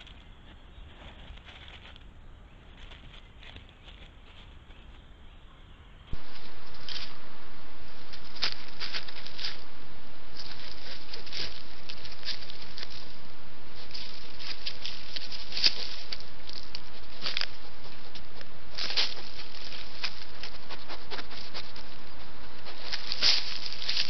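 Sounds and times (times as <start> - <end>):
animal walking through dry leaves: 0.0 - 5.1, 6.1 - 24.0
steady hiss: 6.1 - 24.0.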